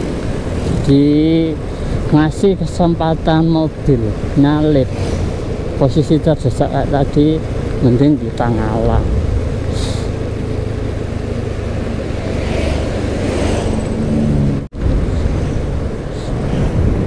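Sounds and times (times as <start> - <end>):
motorcycle engine running: 4.6 - 12.3
wind rushing over helmet microphone: 7.5 - 17.0.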